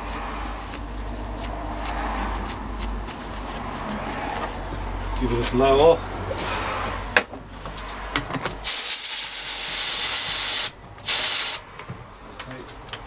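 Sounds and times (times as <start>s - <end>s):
compressed air blow gun hissing: 8.6s - 11.6s.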